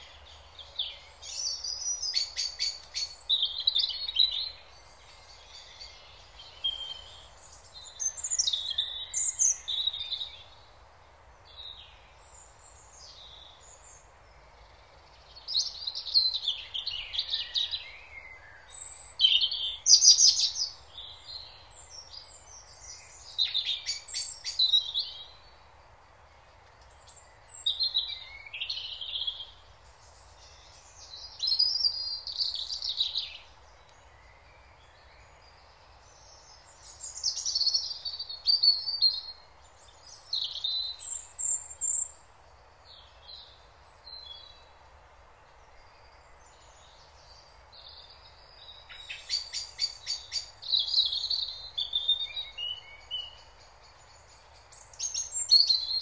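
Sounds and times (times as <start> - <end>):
songbirds singing: 0.0 - 56.0
steady background hiss: 0.0 - 56.0.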